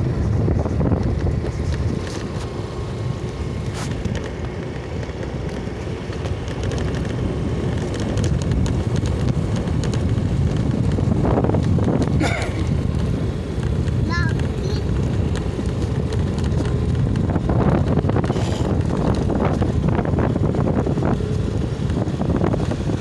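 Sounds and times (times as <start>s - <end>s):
low vehicle and road rumble: 0.0s - 23.0s
wind buffeting microphone: 0.0s - 23.0s.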